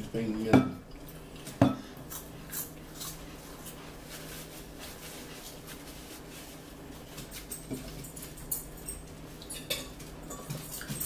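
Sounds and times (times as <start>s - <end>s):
low steady hum: 0.0s - 11.0s
rubbing on tabletop: 3.4s - 7.6s.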